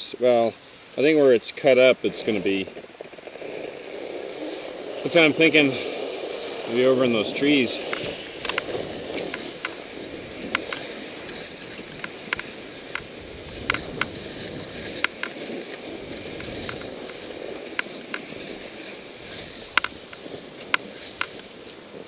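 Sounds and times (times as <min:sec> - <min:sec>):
skis scraping over snow: 0:00.2 - 0:22.0
sharp clicks: 0:07.8 - 0:09.8, 0:10.4 - 0:14.2, 0:14.9 - 0:15.4, 0:16.3 - 0:18.3, 0:19.7 - 0:21.5.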